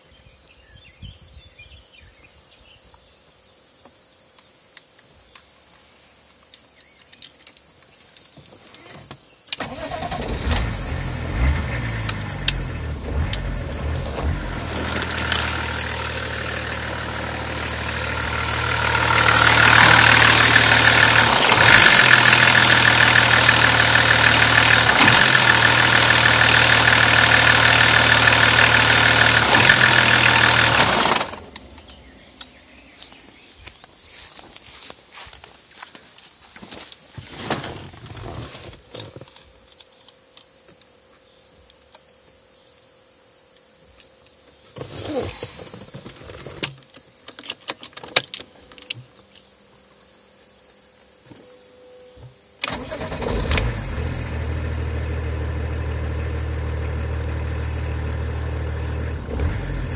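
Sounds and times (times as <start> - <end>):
diesel engine starting and idling: 9.6 - 31.6, 52.6 - 59.9.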